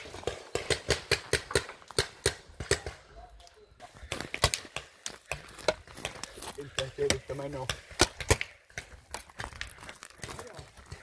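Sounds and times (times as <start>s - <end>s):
twigs snapping: 7.7s - 11.0s
footsteps crunching on pine needles: 8.8s - 11.0s.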